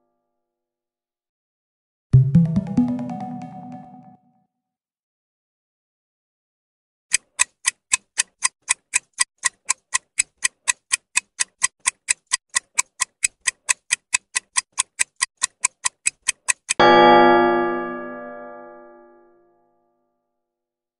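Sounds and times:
ticking clock: 7.1s - 16.8s.

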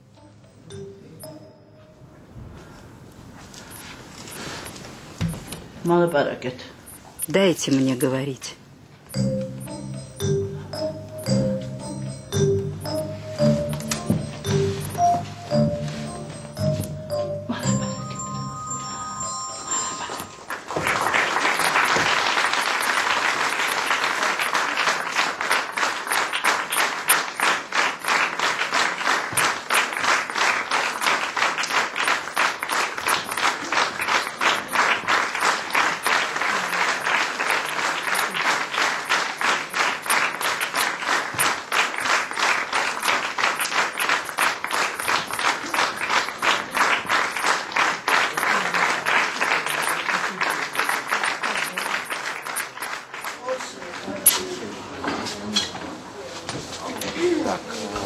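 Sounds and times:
audience clapping in rhythm: 9.1s - 18.9s, 19.7s - 54.3s.

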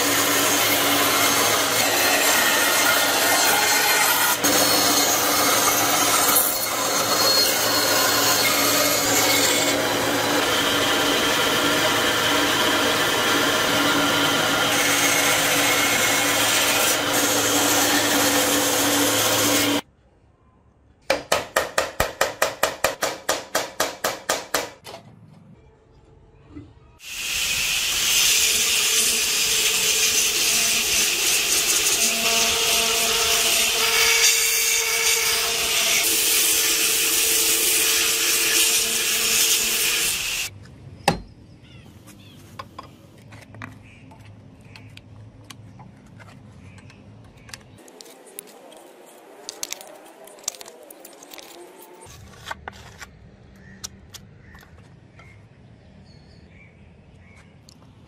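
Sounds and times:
power tool running: 0.0s - 19.8s
belt grinder grinding: 27.2s - 40.5s.

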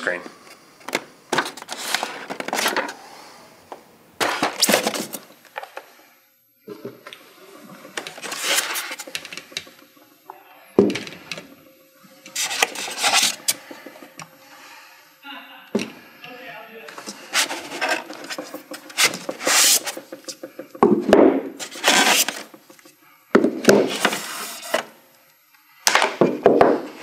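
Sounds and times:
foam rubbing and scraping: 1.6s - 2.6s, 7.5s - 9.6s, 12.3s - 14.1s, 17.0s - 20.7s, 21.6s - 22.9s, 23.8s - 24.9s.

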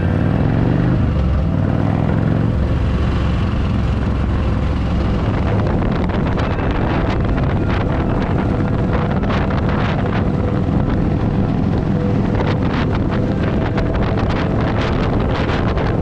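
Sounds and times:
motorcycle engine drone: 0.0s - 16.0s
wind buffeting microphone: 0.0s - 16.0s.

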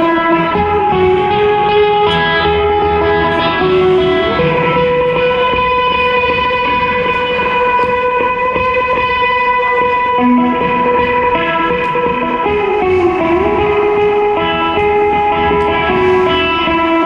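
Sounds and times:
electric guitar long note: 0.0s - 17.0s
live band playing: 0.0s - 17.0s.

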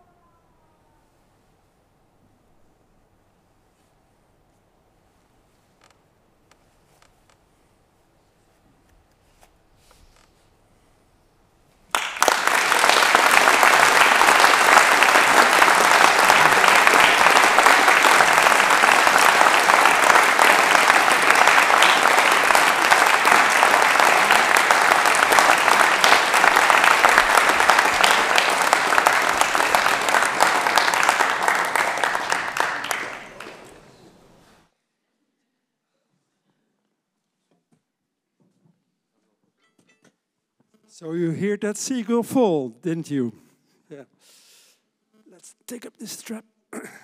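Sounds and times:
audience applauding: 11.9s - 34.2s.

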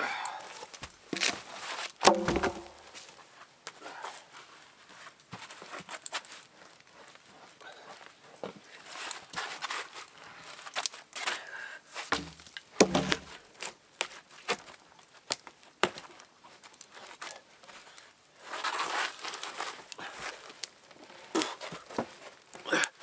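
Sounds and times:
rustling: 0.5s - 23.0s
heavy thump: 2.0s - 2.8s
wooden posts knocking and creaking: 2.0s - 3.1s, 12.1s - 13.4s.

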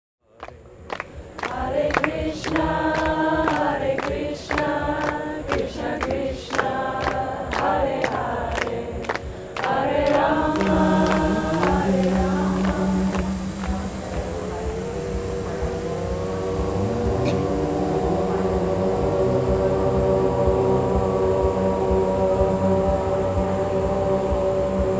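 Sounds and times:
choir singing chant-like notes: 0.3s - 24.9s
deep held note: 10.5s - 24.9s.

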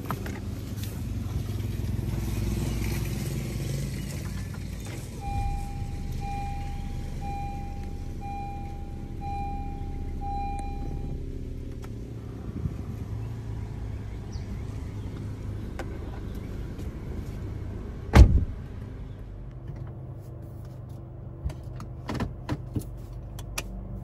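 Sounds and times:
car engine idling: 0.0s - 19.9s
car door shutting: 18.1s - 18.6s.

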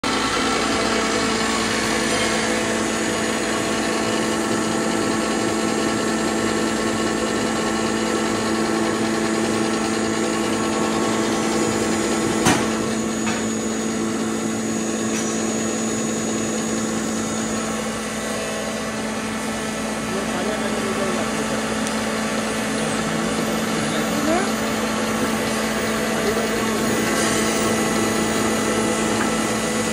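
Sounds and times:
grinding machine running: 0.0s - 29.9s.

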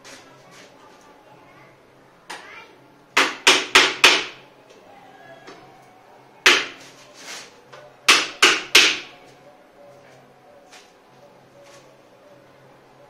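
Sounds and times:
hammer knocking on metal tubes: 3.2s - 4.4s, 8.1s - 9.1s.

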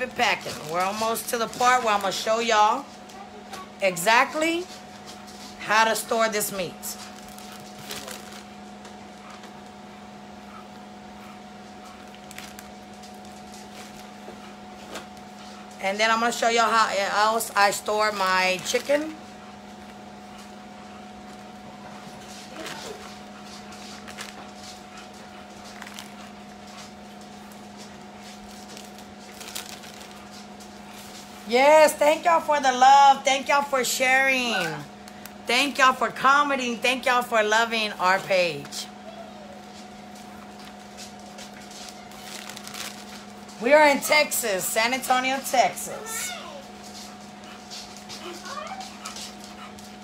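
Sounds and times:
low electrical hum: 0.0s - 50.0s
plastic bag crinkling: 6.8s - 8.6s, 12.0s - 14.2s, 17.4s - 19.1s, 22.4s - 31.4s, 39.6s - 43.6s.

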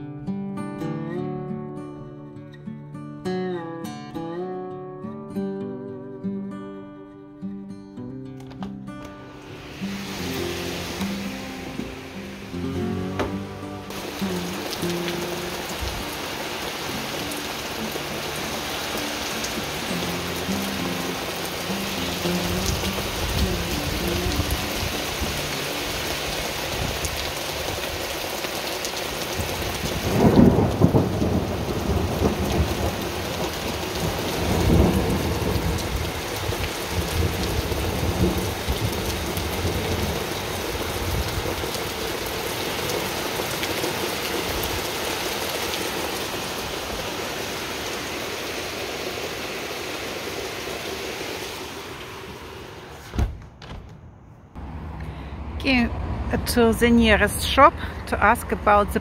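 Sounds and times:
steady rain falling: 9.0s - 53.1s
rolling thunder: 29.8s - 40.2s.

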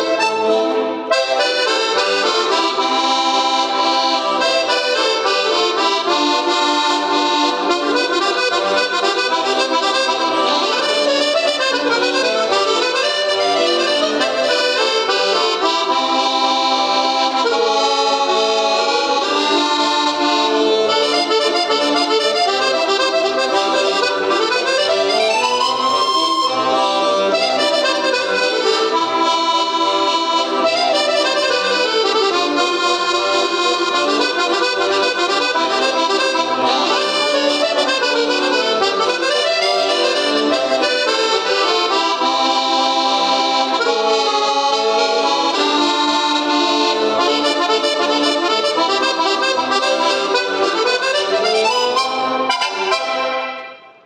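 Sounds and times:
accordion playing a waltz: 0.0s - 54.0s.

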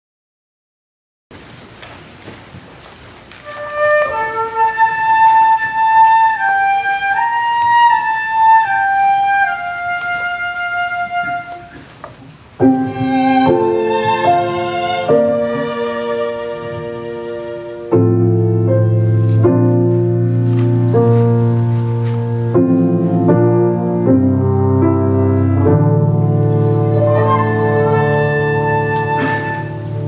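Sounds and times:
slow wind instrument melody: 3.4s - 12.0s, 12.6s - 30.0s
piano accompaniment: 3.4s - 30.0s.

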